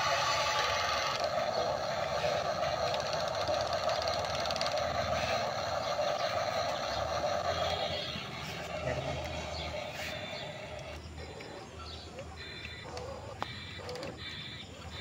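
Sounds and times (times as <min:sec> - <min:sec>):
fast fine gear ticking: 0:00.0 - 0:11.0
small electric motors whirring: 0:00.0 - 0:11.7.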